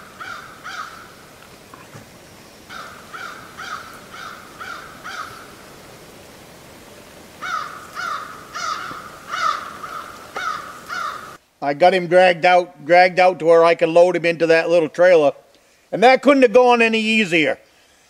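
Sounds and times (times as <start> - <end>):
crow cawing: 0.0 - 1.2, 2.7 - 5.5, 7.4 - 11.4.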